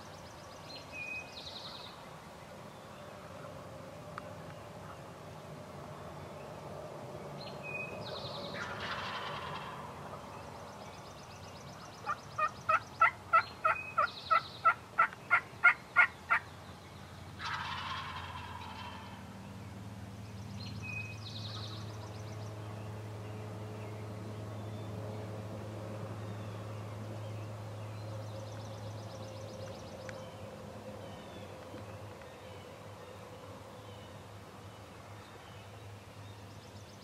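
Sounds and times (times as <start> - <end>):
turkey yelps: 8.6 - 9.7, 17.4 - 19.2
turkey gobbling: 8.6 - 9.8, 12.0 - 16.4, 17.4 - 19.2.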